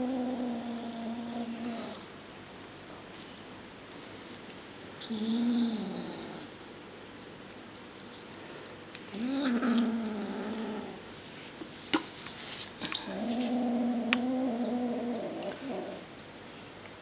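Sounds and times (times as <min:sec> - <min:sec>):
kitten growling: 0:00.0 - 0:02.1, 0:05.0 - 0:06.5, 0:09.1 - 0:11.0, 0:12.8 - 0:16.1.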